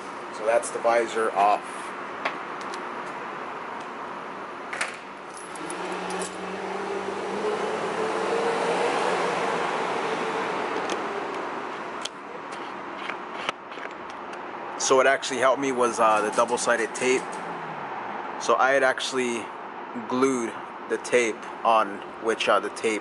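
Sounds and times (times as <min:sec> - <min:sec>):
keys jingling: 0:05.3 - 0:06.4
vehicle passing: 0:05.4 - 0:12.0, 0:15.7 - 0:19.9.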